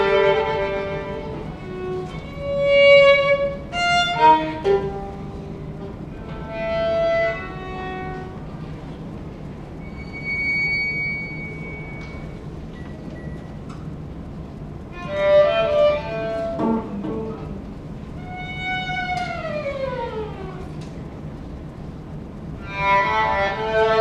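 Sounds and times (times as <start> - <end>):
clarinet: 0.0 - 5.5, 9.8 - 12.5, 14.9 - 17.5, 22.6 - 24.0
violin playing held notes: 0.0 - 8.6, 14.9 - 17.3, 18.2 - 20.6, 22.6 - 24.0
cello: 0.0 - 9.1, 14.9 - 21.0, 22.6 - 24.0
steady low tone: 0.0 - 24.0.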